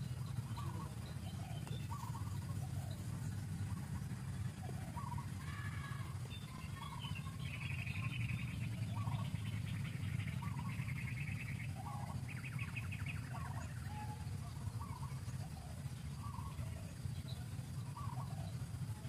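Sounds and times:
bird chirps: 0.0 - 19.0
bird trilling: 0.0 - 19.0
steady low rumble: 0.0 - 19.0.

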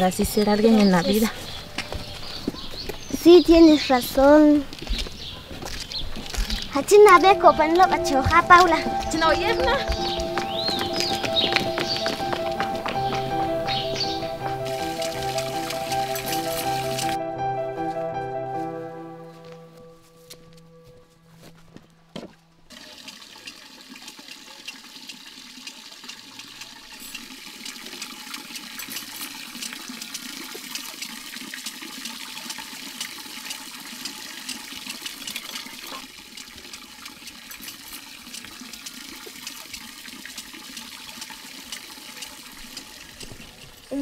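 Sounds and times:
running water rushing: 6.3 - 17.2.

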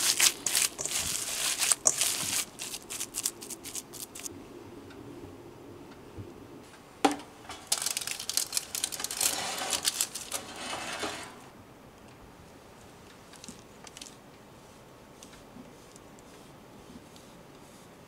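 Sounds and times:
cheese scraping on grater: 0.0 - 4.2
metal rack and tray rattling: 7.5 - 11.5.

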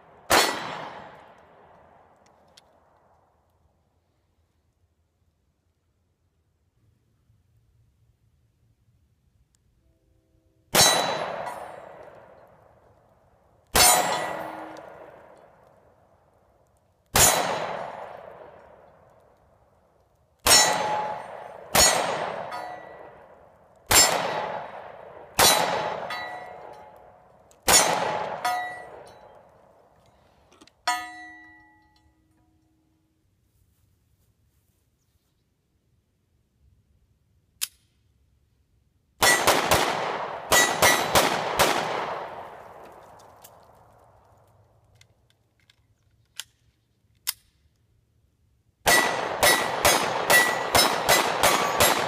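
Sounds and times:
pistol shots echoing: 0.0 - 2.2, 10.7 - 12.7, 13.7 - 15.6, 17.1 - 19.1, 20.4 - 29.6, 39.2 - 43.2, 48.8 - 52.0
sharp metallic ring: 13.8 - 15.0, 20.5 - 23.2, 25.4 - 26.9, 28.4 - 29.4, 30.9 - 32.6.

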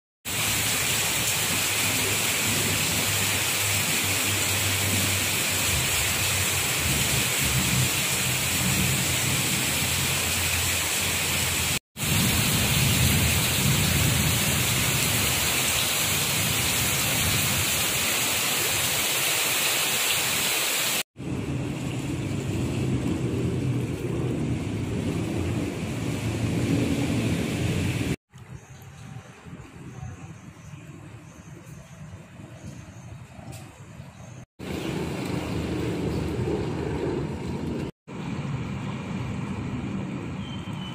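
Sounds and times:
heavy rain on floodwater: 0.2 - 28.2, 34.6 - 39.2.

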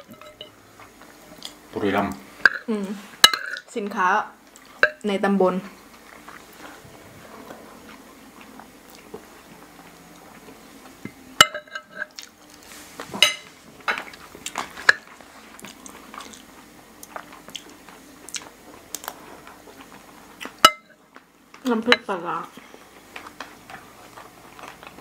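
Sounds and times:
cutlery clinking on plates: 11.4 - 12.1, 13.1 - 15.1, 20.6 - 20.9.

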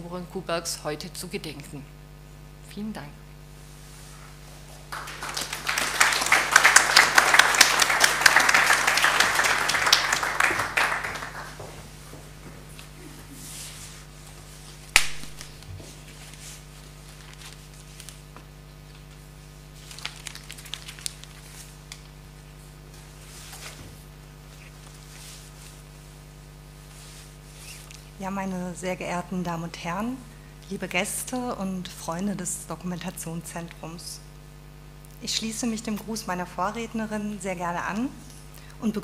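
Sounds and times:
audience applauding: 4.9 - 11.8
paper rustling: 13.4 - 22.2, 22.9 - 25.9.

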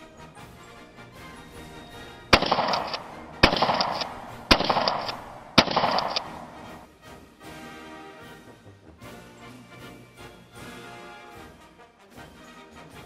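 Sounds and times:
shotgun shots with echo: 2.3 - 6.9.

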